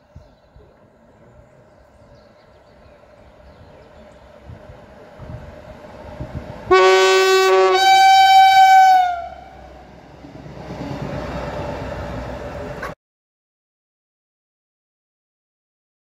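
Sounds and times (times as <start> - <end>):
train rushing by: 0.8 - 13.0
train horn blasts: 6.7 - 9.9.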